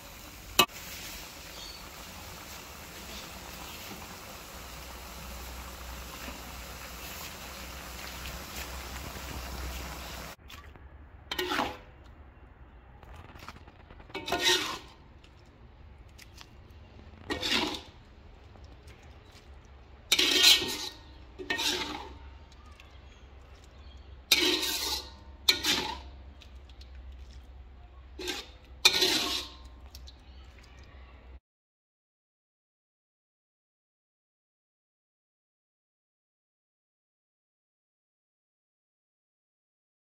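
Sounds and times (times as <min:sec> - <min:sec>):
metal ladle scraping a wok: 0:05.0 - 0:10.4, 0:11.3 - 0:12.0, 0:13.7 - 0:15.0, 0:17.1 - 0:18.1, 0:20.1 - 0:22.2, 0:24.2 - 0:26.2, 0:28.1 - 0:29.8.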